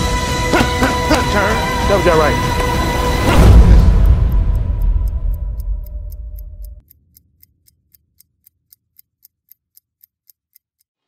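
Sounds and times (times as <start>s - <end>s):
faint even ticking: 3.4s - 11.0s.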